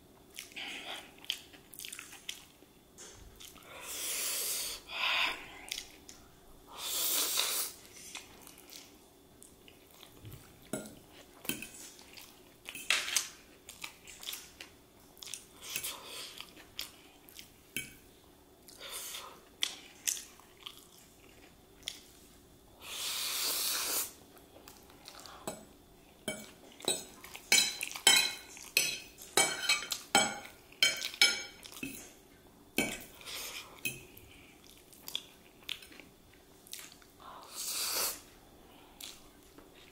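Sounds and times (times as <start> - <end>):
wet chewing: 0.3 - 2.6, 19.6 - 22.1
fork clinking and scraping on plate: 26.3 - 32.0.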